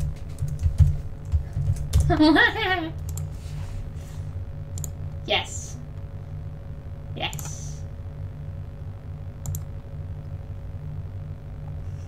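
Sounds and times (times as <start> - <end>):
low electrical hum: 0.0 - 12.0
computer mouse clicks: 3.0 - 3.3, 4.7 - 5.0, 7.3 - 7.5, 9.4 - 9.7.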